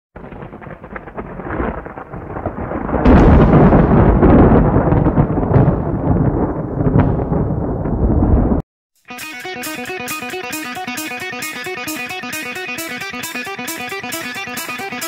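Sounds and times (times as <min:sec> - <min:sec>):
thunder rumble and crack: 0:00.2 - 0:08.6.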